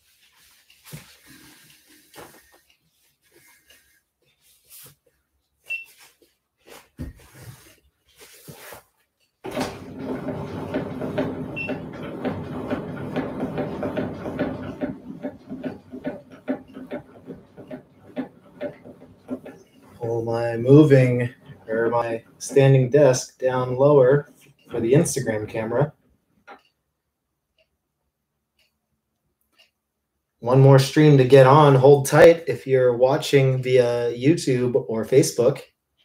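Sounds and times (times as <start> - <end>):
handling knocks and rustles: 0.1 - 11.3
standing desk motor humming: 9.5 - 25.5.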